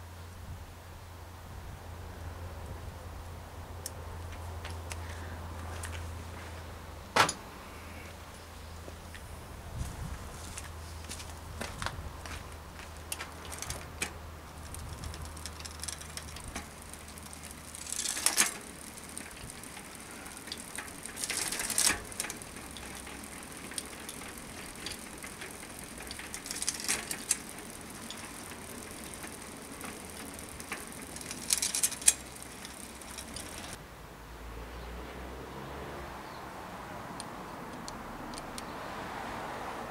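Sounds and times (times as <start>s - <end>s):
bicycle hub ticking: 10.6s - 33.8s
chain rattling over sprockets: 12.2s - 33.8s.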